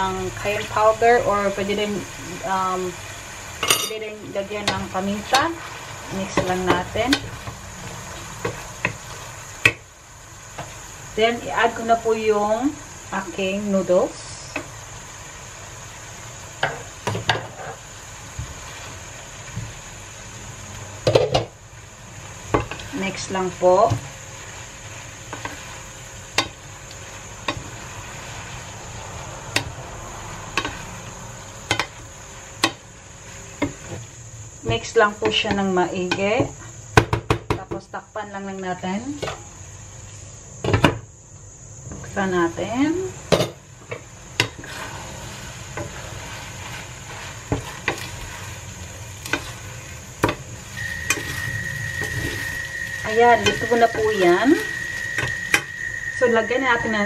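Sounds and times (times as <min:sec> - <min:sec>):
food sizzling: 0:00.0 - 0:57.0
spatula stirring noodles in pan: 0:00.4 - 0:11.9, 0:14.2 - 0:37.1, 0:43.4 - 0:56.0
spatula knocking on pan: 0:34.7 - 0:37.8.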